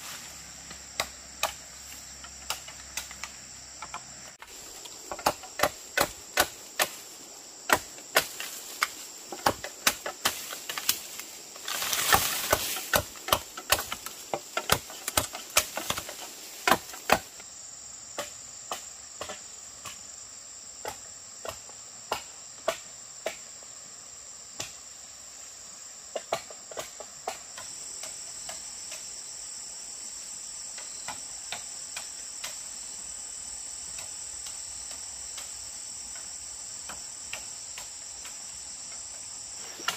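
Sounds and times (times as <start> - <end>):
insects chirring: 0.0 - 39.9
rustling: 8.2 - 17.2.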